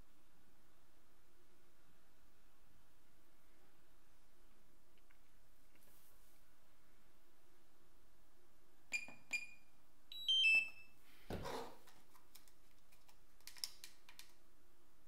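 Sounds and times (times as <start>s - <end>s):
short beeps: 9.0s - 10.9s.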